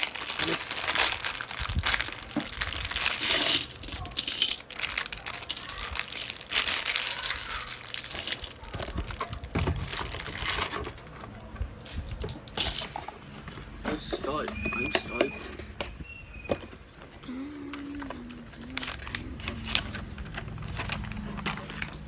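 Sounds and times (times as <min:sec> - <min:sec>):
plastic bag crinkling: 0:00.0 - 0:11.4, 0:17.7 - 0:22.0.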